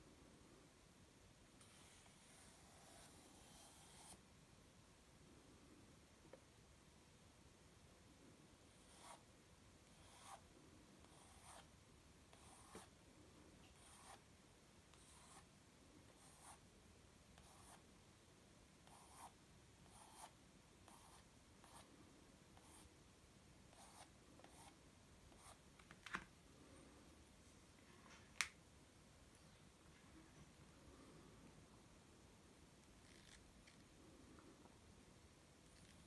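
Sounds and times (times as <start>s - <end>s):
pencil scratching on paper: 1.6s - 4.2s, 8.7s - 9.2s, 9.8s - 10.4s, 11.0s - 11.7s, 12.3s - 12.9s, 13.7s - 14.2s, 14.9s - 15.4s, 16.1s - 16.6s, 17.4s - 17.8s, 18.8s - 21.9s, 22.6s - 22.9s, 23.7s - 25.6s.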